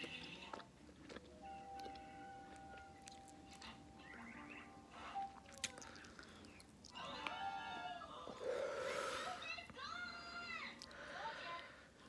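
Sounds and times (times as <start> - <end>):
bubble gum chewing: 0.0 - 9.0.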